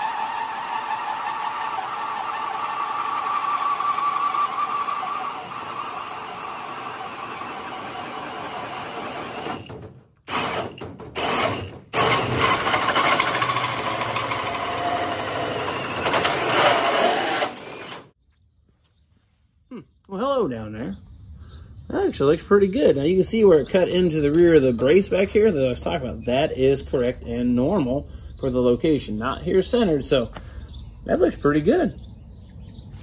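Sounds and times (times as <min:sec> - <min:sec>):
drill hole saw cutting steel: 0:00.0 - 0:18.1.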